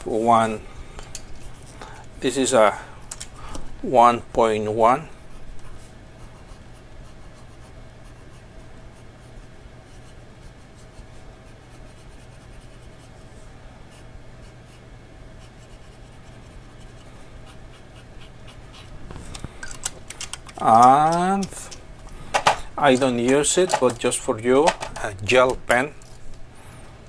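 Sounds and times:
steady low hum: 0:00.0 - 0:27.0
pen nib scratching paper: 0:06.2 - 0:13.3, 0:15.4 - 0:19.0.

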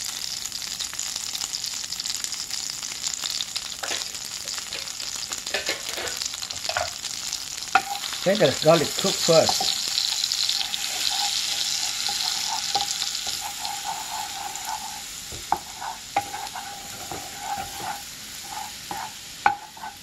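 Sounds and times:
garlic sizzling in a frying pan: 0:00.0 - 0:20.0
spatula knocking against pan: 0:18.9 - 0:19.9.

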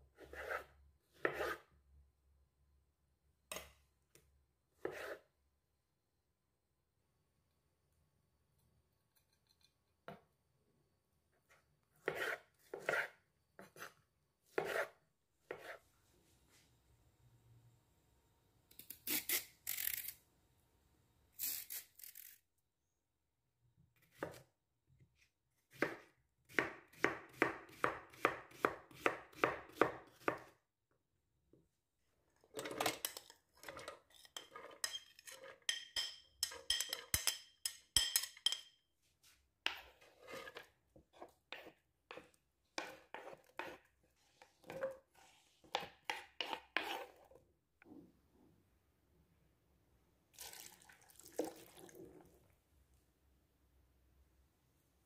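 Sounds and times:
knife chopping on cutting board: 0:14.5 - 0:14.9, 0:25.7 - 0:30.5
spoon scraping a plate: 0:32.6 - 0:38.8, 0:39.7 - 0:47.4.

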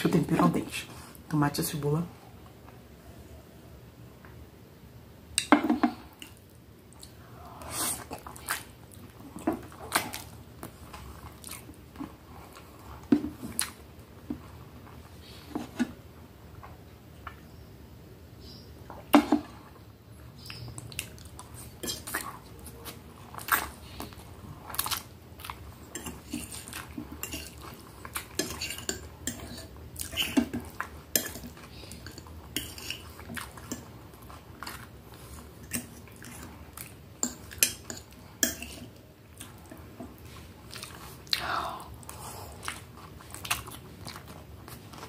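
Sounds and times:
chewing: 0:06.2 - 0:15.1, 0:20.4 - 0:45.0
cutlery clinking against a dish: 0:28.3 - 0:33.0, 0:37.2 - 0:38.9.

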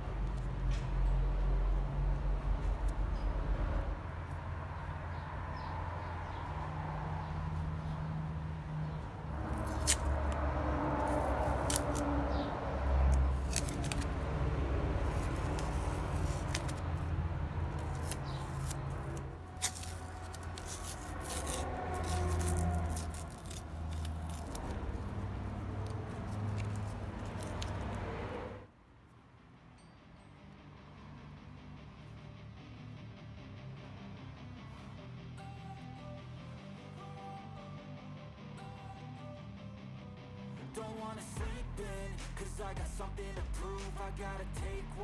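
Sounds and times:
steady low rumble: 0:41.4 - 0:45.0.

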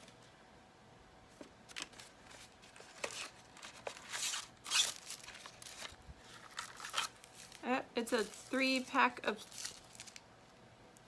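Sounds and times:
plastic package rustling and ripping: 0:01.6 - 0:10.3.

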